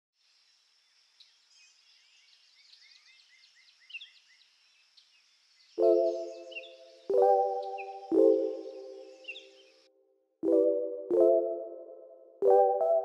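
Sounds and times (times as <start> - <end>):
songbirds chirping: 0.2 - 13.0
music with sustained chord: 5.8 - 9.6, 10.4 - 13.0.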